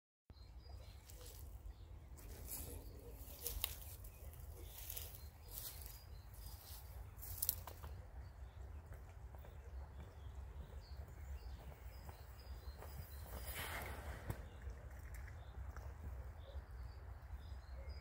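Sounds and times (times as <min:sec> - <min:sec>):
rustles in dry grass: 0:00.9 - 0:07.9
low wind rumble: 0:08.2 - 0:17.7.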